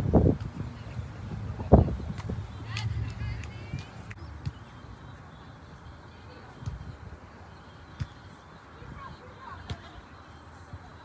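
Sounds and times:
background noise: 0:00.0 - 0:11.0
hands slapping volleyball: 0:02.1 - 0:04.6.

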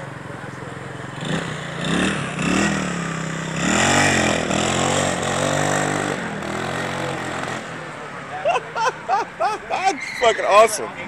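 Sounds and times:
motorcycle engine revving: 0:00.0 - 0:08.1.

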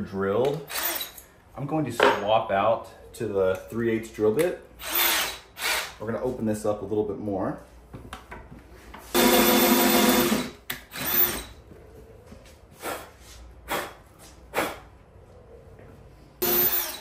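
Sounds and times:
cordless drill whining: 0:00.7 - 0:01.2, 0:04.8 - 0:06.0, 0:10.2 - 0:11.5, 0:16.4 - 0:17.0.

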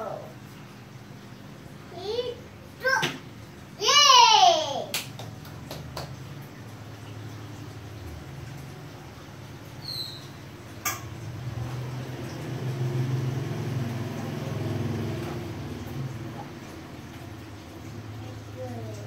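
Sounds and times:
low motor hum: 0:05.2 - 0:19.0.

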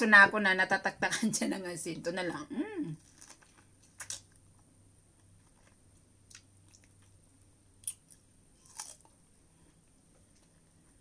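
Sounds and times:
soft wet chewing: 0:03.0 - 0:11.0.

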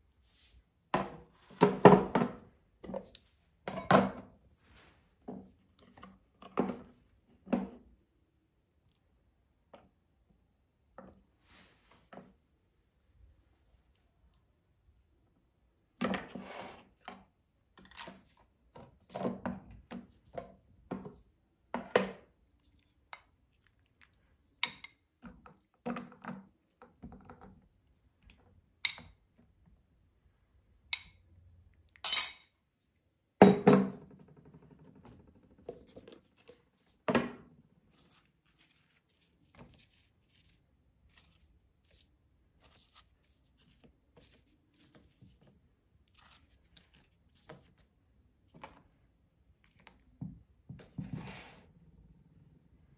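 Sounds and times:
serving spoons clinking on dishes: 0:32.0 - 0:32.6.

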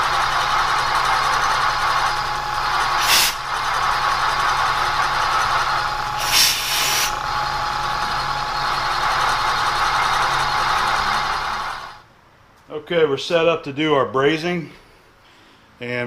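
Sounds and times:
steady machine hum: 0:00.0 - 0:13.7
compressed air blasts: 0:02.7 - 0:03.7, 0:05.8 - 0:07.2.

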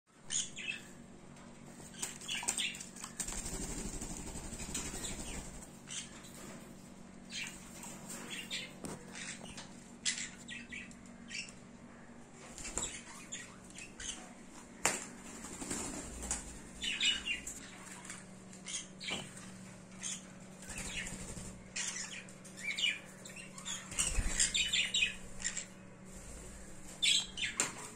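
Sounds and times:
wings flapping: 0:02.0 - 0:05.7, 0:14.8 - 0:16.6, 0:20.7 - 0:21.8.

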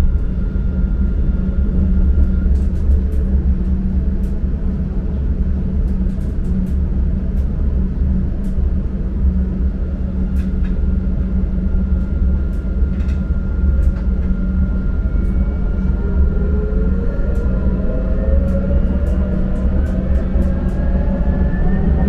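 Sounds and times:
tram rumbling: 0:00.0 - 0:22.0
rising whine: 0:10.9 - 0:22.0.

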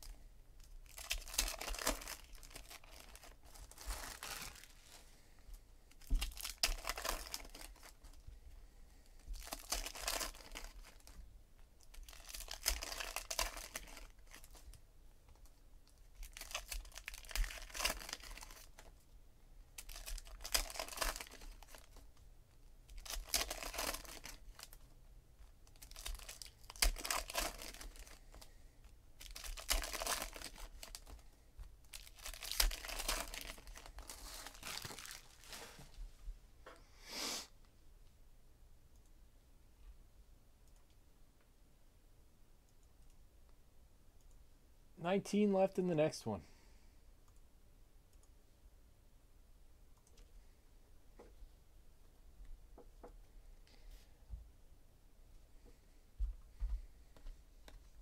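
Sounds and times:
foil wrappers tearing and crinkling: 0:00.8 - 0:05.0, 0:06.0 - 0:08.0, 0:09.4 - 0:11.2, 0:11.9 - 0:14.6, 0:16.2 - 0:18.7, 0:19.8 - 0:22.0, 0:22.9 - 0:24.8, 0:25.7 - 0:28.4, 0:29.2 - 0:31.2, 0:31.9 - 0:35.8.

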